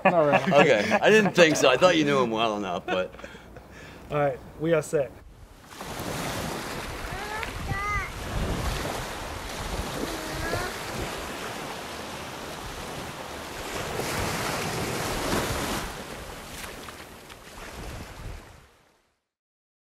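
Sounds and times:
wind rushing over microphone: 0:05.2 - 0:16.4, 0:17.6 - 0:18.7
surf washing on shore: 0:05.5 - 0:18.9.

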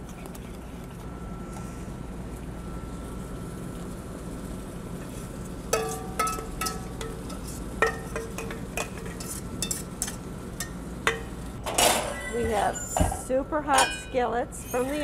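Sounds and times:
kitchen hum: 0:00.0 - 0:15.0
metal kitchenware clinking: 0:05.8 - 0:15.0.

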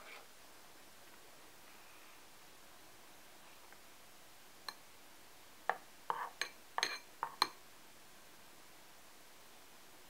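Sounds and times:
metal spoon clinking bowl: 0:06.1 - 0:07.6.

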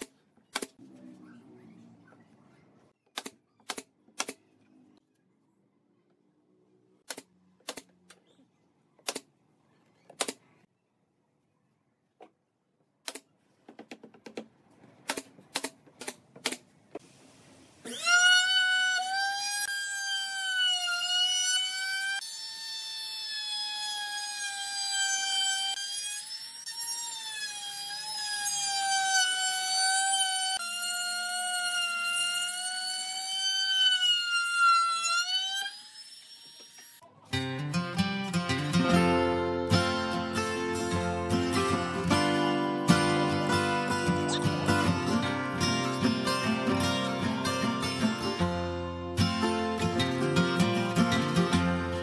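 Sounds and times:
router whining: 0:17.9 - 0:37.1.

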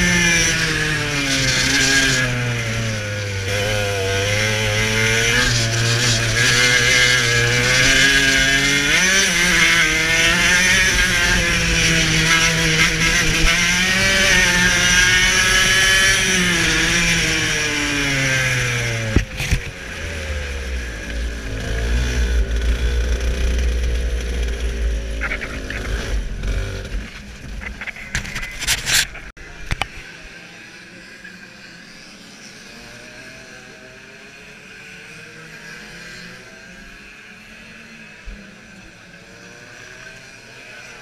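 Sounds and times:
two-stroke kart engine revving: 0:00.0 - 0:28.3.

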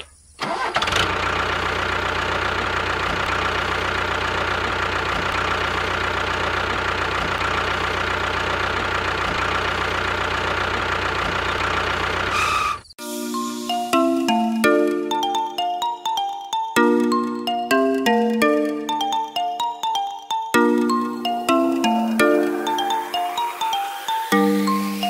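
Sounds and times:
diesel tractor engine idling: 0:00.4 - 0:12.8
short chiming tune: 0:13.0 - 0:16.1, 0:20.5 - 0:25.0.

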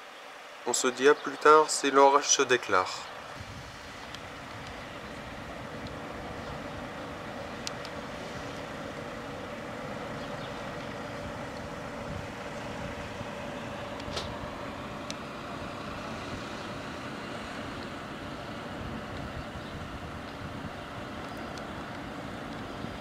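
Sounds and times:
city traffic hum: 0:00.0 - 0:23.0.

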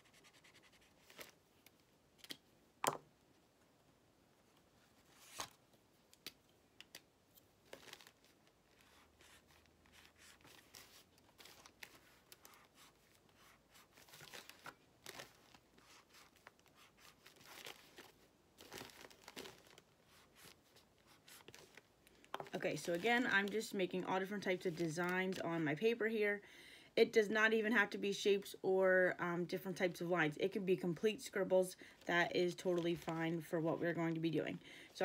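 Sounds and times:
marker scratching on paper: 0:00.0 - 0:01.0
thin paper crinkling: 0:07.6 - 0:23.8.

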